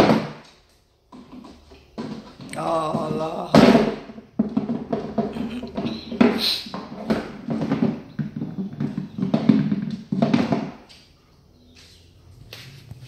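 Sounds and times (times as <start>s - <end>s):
puppy knocking and scuffling: 1.1s - 11.0s.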